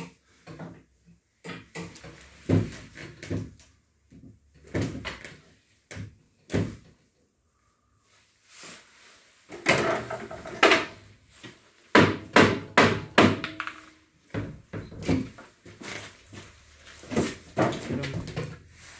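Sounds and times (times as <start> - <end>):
cabinet doors knocking: 11.9 - 13.8.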